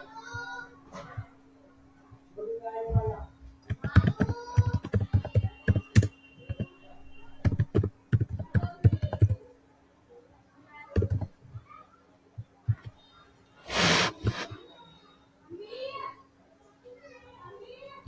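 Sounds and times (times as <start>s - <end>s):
keyboard typing: 3.6s - 6.8s, 7.4s - 9.4s, 10.9s - 11.4s.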